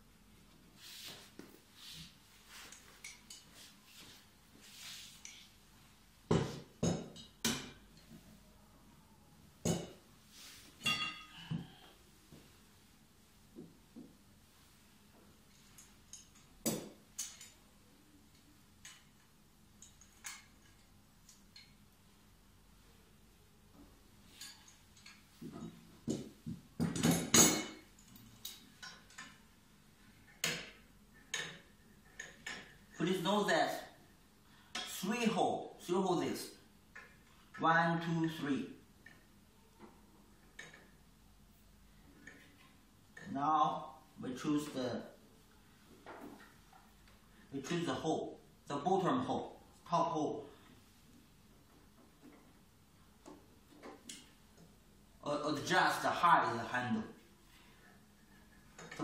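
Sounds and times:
soft rustling of parts: 0.0s - 59.0s
metallic clanks with ring: 10.8s - 11.4s.

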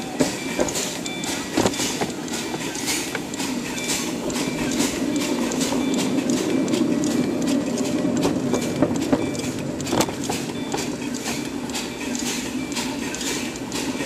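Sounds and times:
steam locomotive chuffing: 0.0s - 14.0s
wheels rumbling on track: 0.0s - 14.0s.

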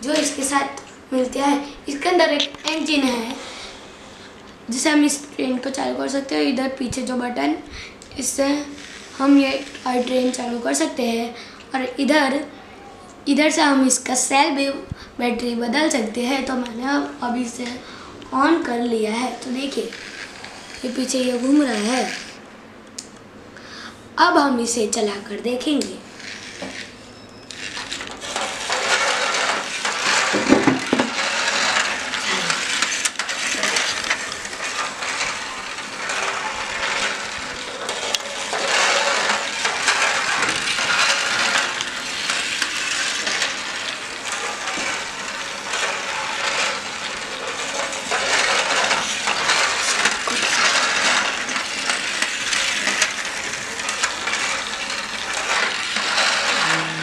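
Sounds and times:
toy train rattling on track: 0.0s - 4.0s, 8.2s - 11.3s, 18.4s - 22.4s, 25.0s - 57.0s.

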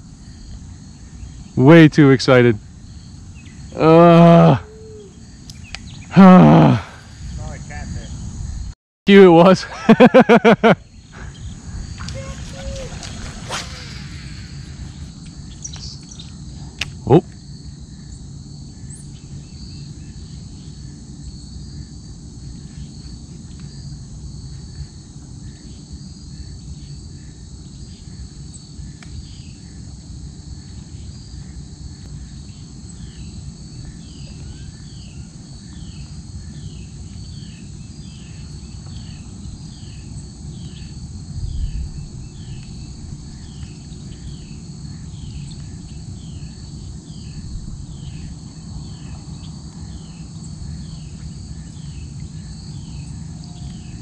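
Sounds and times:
insects chirring in pulsing trill: 0.0s - 54.0s
short falling chirp: 12.0s - 16.0s.

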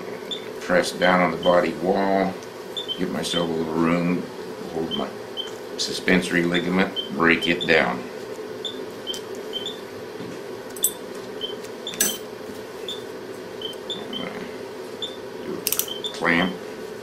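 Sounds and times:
steady low hum: 0.0s - 17.0s
patient monitor beeps: 2.8s - 3.2s, 4.9s - 5.6s, 6.8s - 7.8s, 8.6s - 9.8s, 13.6s - 14.3s, 15.0s - 15.2s.

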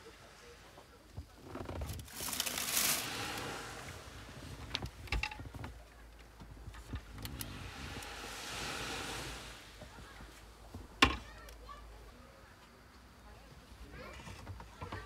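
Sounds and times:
rustling swish: 7.0s - 10.7s.

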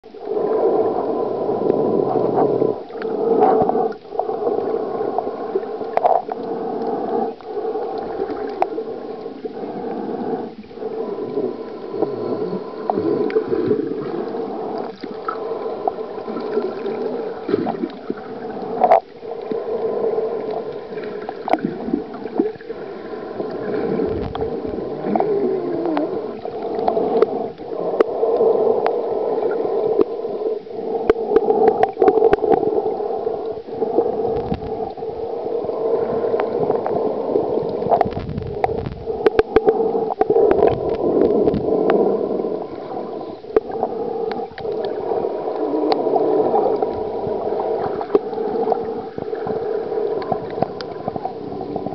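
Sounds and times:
muffled underwater water wash: 0.0s - 51.9s
sharp clicks underwater: 5.7s - 9.4s, 12.8s - 22.7s, 23.4s - 30.1s, 31.0s - 32.8s, 33.4s - 35.0s, 37.6s - 42.1s, 42.7s - 51.9s.

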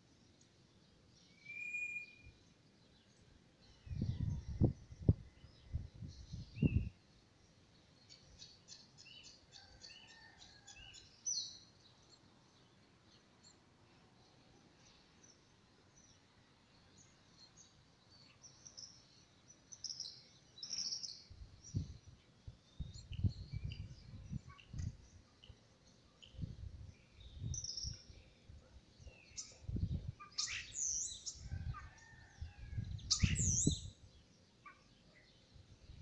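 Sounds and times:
small birds chirping: 0.0s - 36.0s.

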